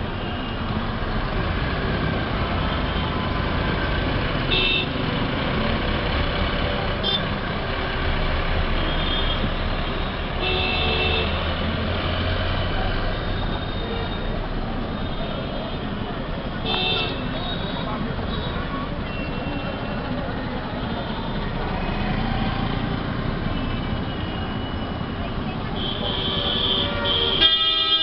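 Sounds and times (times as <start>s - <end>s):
traffic engines rumbling: 0.0s - 28.0s
car horn toots: 25.8s - 28.0s.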